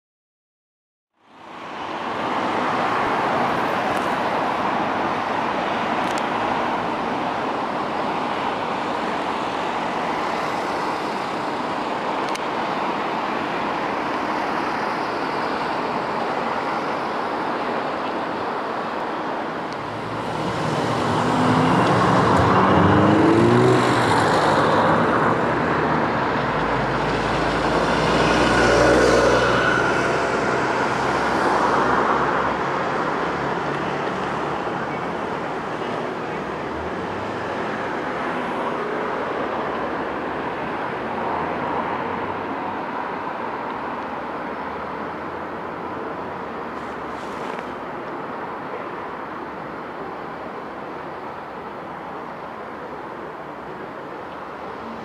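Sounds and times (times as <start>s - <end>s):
road noise: 1.1s - 55.0s
vehicle engine pulling away: 19.8s - 25.0s.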